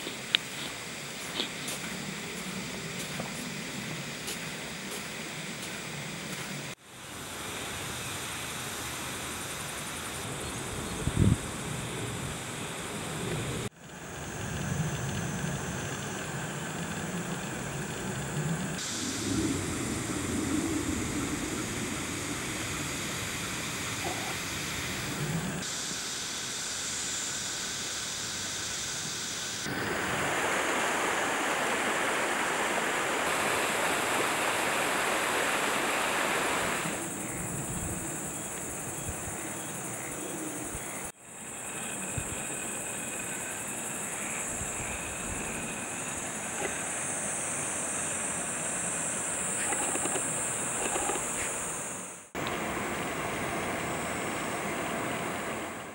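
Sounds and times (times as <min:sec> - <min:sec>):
river water rushing: 0:29.7 - 0:37.0.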